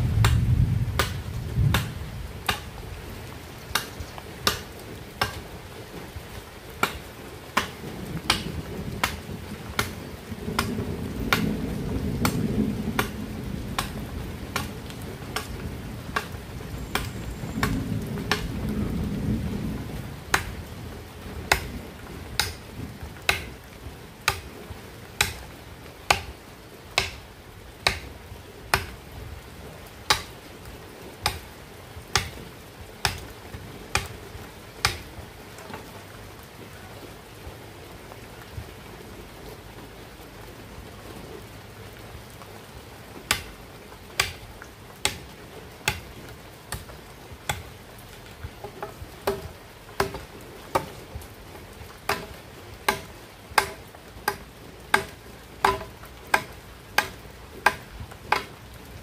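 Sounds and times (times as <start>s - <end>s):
machete chopping bamboo: 0.2s - 0.4s, 1.0s - 2.7s, 3.7s - 5.4s, 6.8s - 7.0s, 7.6s - 8.4s, 9.8s - 10.0s, 13.0s - 13.2s, 14.5s - 14.7s, 15.3s - 15.6s, 16.9s - 17.7s, 20.3s - 20.5s, 21.5s - 21.7s, 22.4s - 22.7s, 23.3s - 23.6s, 24.2s - 24.6s, 25.2s - 25.4s, 26.1s - 26.4s, 27.0s - 28.1s, 28.7s - 29.0s, 30.1s - 30.4s, 31.2s - 31.5s, 32.1s - 32.4s, 33.0s - 33.3s, 33.9s - 34.2s, 34.8s - 35.1s, 43.3s - 43.5s, 44.1s - 44.4s, 45.0s - 47.7s, 48.6s - 51.0s, 52.0s - 58.5s.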